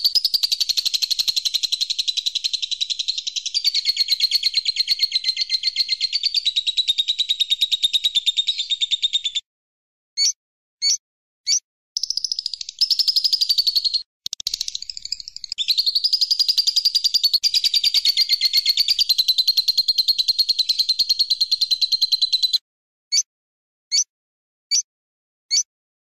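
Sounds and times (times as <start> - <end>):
bird fast pulsed trill: 0.0 - 9.1, 12.0 - 22.6
bird chirps: 0.0 - 9.5, 10.2 - 23.3.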